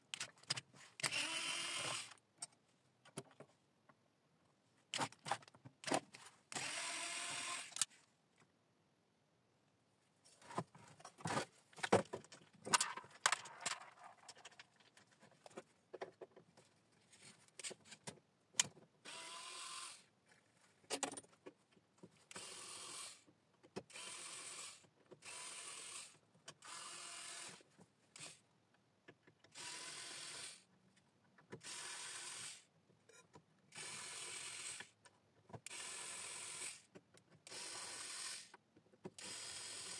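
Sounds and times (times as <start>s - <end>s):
electric screwdriver running: 1.0s - 2.1s, 6.6s - 7.8s.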